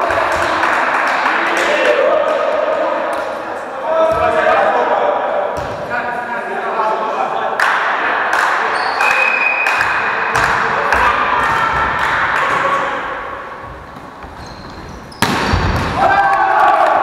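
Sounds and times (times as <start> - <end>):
players shouting: 8.7 - 13.6, 15.3 - 17.0
volleyball being struck: 15.1 - 16.1
loud ball hit: 15.2 - 16.3.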